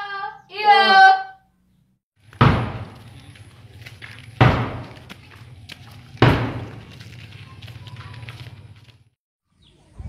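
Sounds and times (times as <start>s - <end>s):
heavy thumps: 2.2s - 3.2s, 4.3s - 5.1s, 6.2s - 7.0s.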